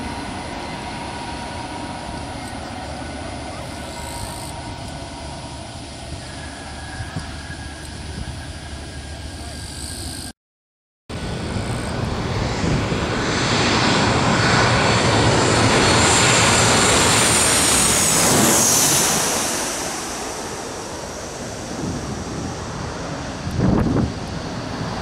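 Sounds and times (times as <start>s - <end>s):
jet airliner passing overhead: 0.0s - 10.3s, 11.1s - 25.0s.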